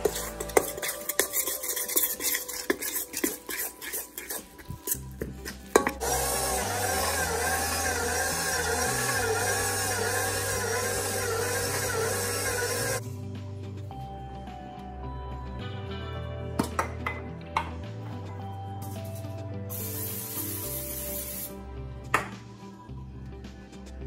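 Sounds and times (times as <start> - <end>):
utensil scraping a steel bowl: 0.0 - 6.0
background music: 0.0 - 24.0
stand mixer kneading dough: 6.0 - 13.0.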